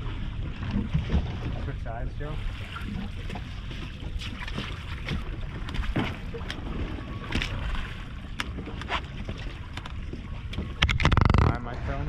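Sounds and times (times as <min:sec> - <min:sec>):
water slapping boat hull: 0:00.0 - 0:12.0.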